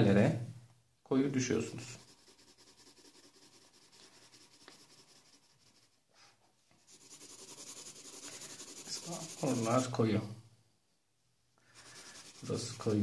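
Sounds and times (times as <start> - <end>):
pencil scratching on paper: 1.4 - 10.0, 11.7 - 13.0.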